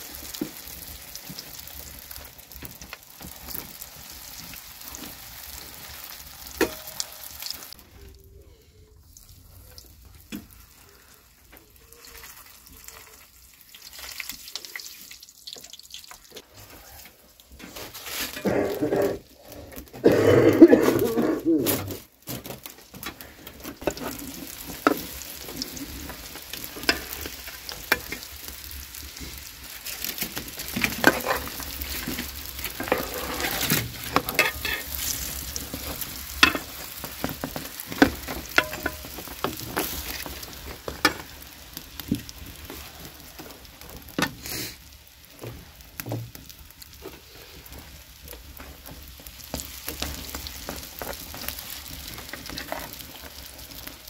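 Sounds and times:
dough sizzling in oil: 0.0 - 8.3, 8.9 - 54.0
metal spatula scraping pan: 17.7 - 19.2, 30.7 - 41.3.

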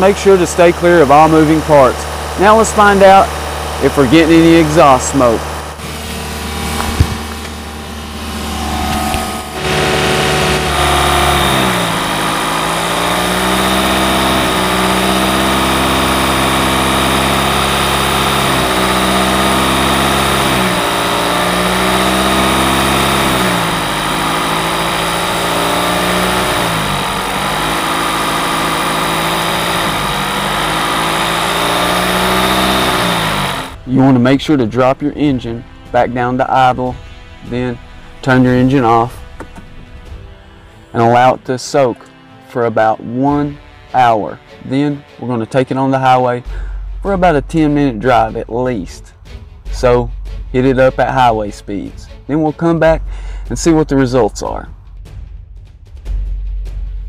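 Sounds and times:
steady high whine: 0.0 - 44.5
car engine revving: 0.0 - 54.7.

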